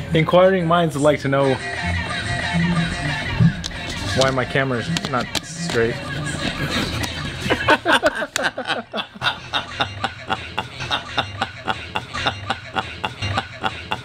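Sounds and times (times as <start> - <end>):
men laughing: 5.9 - 14.0.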